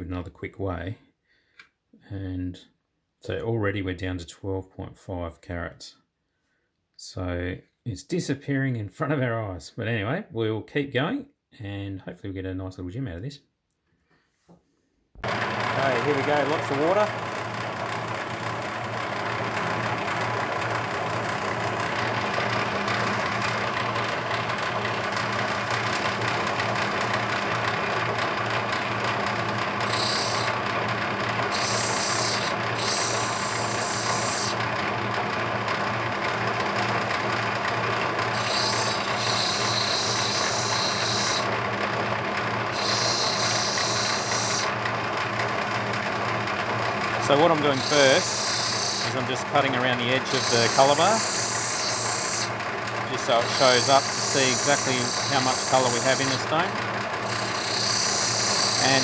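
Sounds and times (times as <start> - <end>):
grinding machine motor hum: 15.2 - 59.0
stone grinding hiss: 29.8 - 30.6, 31.5 - 34.6, 38.3 - 41.5, 42.7 - 44.7, 47.4 - 49.2, 49.8 - 52.5, 53.2 - 56.6, 57.3 - 59.0.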